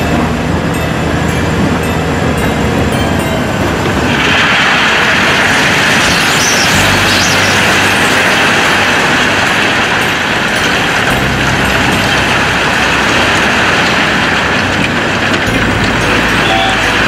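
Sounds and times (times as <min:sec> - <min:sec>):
diesel truck engine running: 0:00.0 - 0:17.0.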